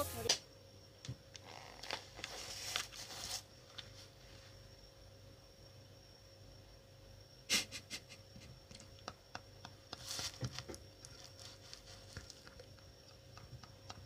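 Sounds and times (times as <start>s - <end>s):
faint steady hum: 0.0s - 14.0s
man laughing breathily: 7.5s - 8.6s.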